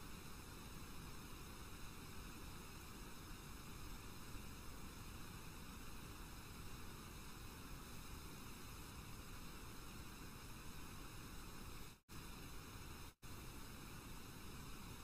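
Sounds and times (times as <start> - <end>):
faint background hiss: 0.0 - 15.0.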